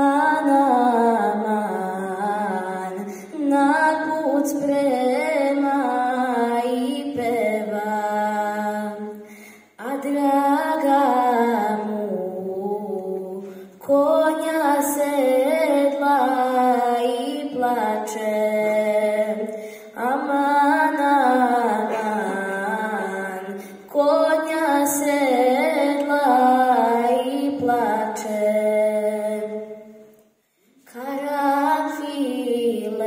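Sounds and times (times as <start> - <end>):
girl singing unaccompanied: 0.0 - 30.0, 30.7 - 33.0
singer breathing: 9.2 - 9.8, 19.5 - 20.0.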